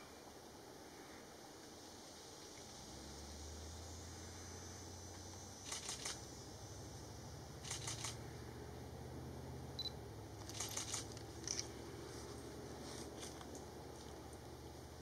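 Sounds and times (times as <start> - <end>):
camera shutters clicking: 5.6 - 6.2, 7.6 - 8.2, 10.4 - 11.7.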